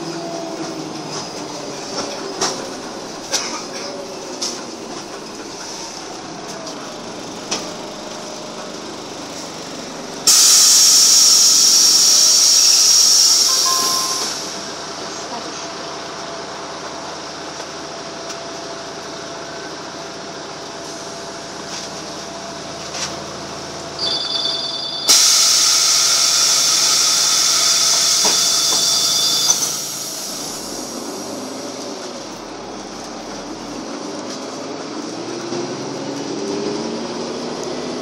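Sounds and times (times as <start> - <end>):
bus engine and road hum: 0.0 - 38.0
loud hiss: 10.3 - 14.6, 25.1 - 31.3
high steady tones: 13.2 - 14.6.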